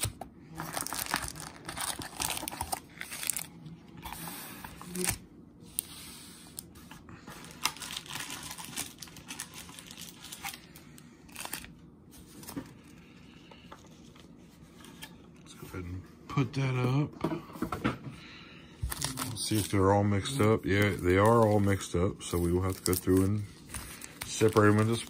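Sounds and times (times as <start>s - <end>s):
foil wrappers crinkling: 0.0s - 3.5s, 7.3s - 13.1s, 18.8s - 25.0s.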